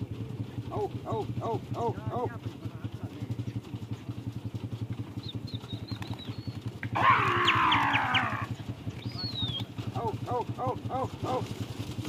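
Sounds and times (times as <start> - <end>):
farm animal calling: 0.6 - 2.4, 5.2 - 11.6
faint whistled bird notes: 5.2 - 6.7, 9.0 - 9.7.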